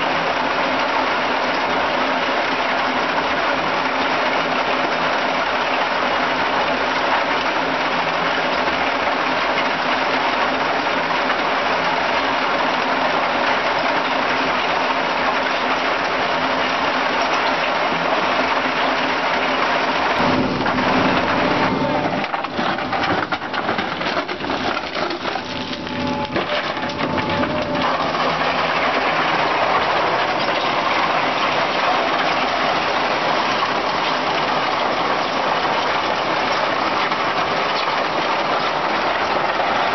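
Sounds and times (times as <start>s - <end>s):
gravel pouring: 0.0s - 39.9s
stone crusher rattling and grinding: 19.4s - 39.9s.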